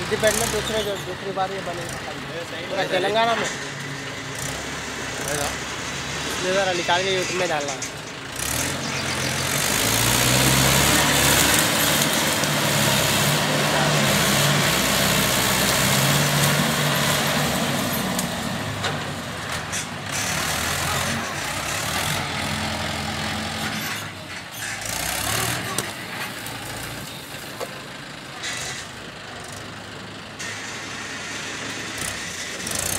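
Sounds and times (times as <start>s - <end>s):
tractor diesel engine under load: 0.0s - 32.9s
dozer blade pushing soil: 7.2s - 27.6s, 28.4s - 29.0s, 30.4s - 32.9s.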